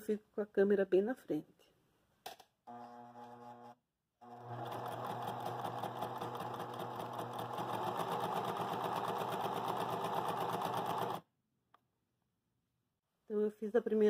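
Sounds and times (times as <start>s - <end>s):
sewing machine stitching: 2.7s - 11.2s.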